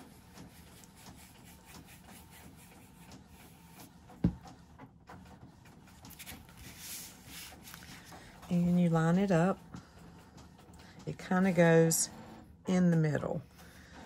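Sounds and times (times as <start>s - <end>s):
paper rustling and sliding: 5.9s - 8.3s.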